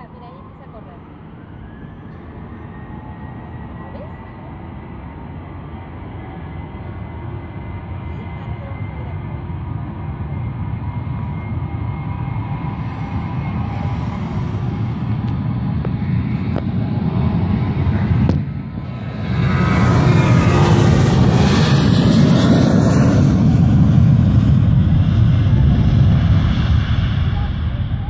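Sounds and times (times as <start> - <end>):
jet engines roaring: 0.0 - 28.0.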